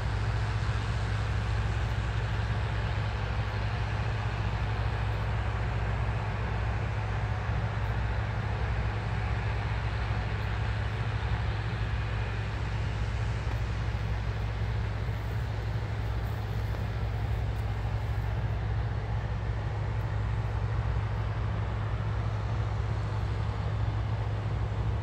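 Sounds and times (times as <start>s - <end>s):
combine harvester engine drone: 0.0s - 25.0s
mechanical harvesting noise: 7.7s - 25.0s.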